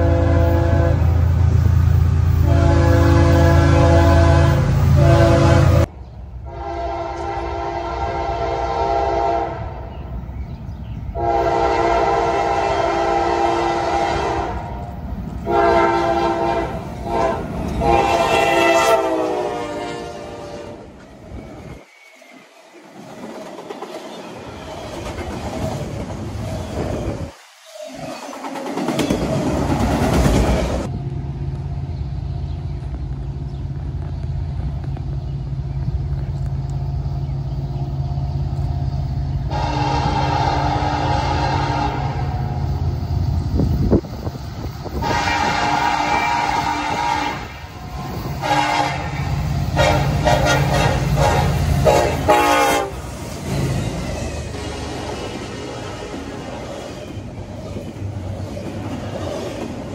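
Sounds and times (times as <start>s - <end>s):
locomotive horn blasts: 0.0s - 1.2s, 2.4s - 5.9s, 6.5s - 9.8s, 11.2s - 14.8s, 15.4s - 20.9s, 39.5s - 42.6s, 45.0s - 47.8s, 48.4s - 53.0s
train wheels clattering on rails: 21.0s - 30.9s, 49.2s - 59.9s.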